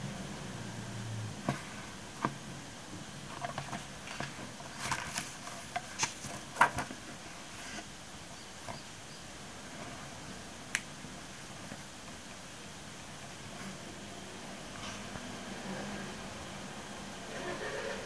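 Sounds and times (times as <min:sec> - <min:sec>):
notebook pages turning: 0:03.3 - 0:07.9.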